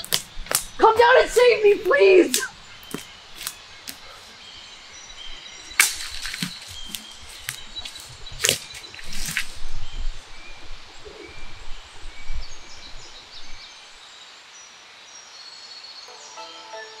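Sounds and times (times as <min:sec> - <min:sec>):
sharp crack: 0:00.0 - 0:04.1, 0:05.7 - 0:07.1
body rustling on leaf floor: 0:00.0 - 0:11.8
birds chirping and whistling: 0:00.0 - 0:13.8.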